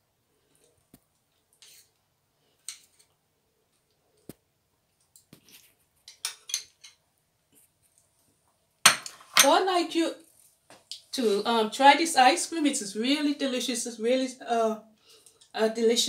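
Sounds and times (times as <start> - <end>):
metal spoon scraping a bowl: 1.6 - 1.9.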